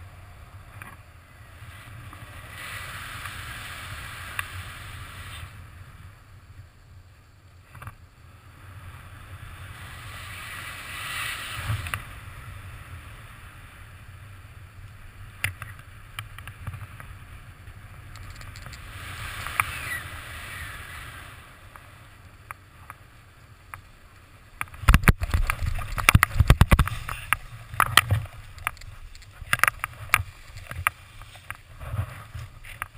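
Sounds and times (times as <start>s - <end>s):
wind rushing over microphone: 8.3s - 23.0s, 24.4s - 32.9s.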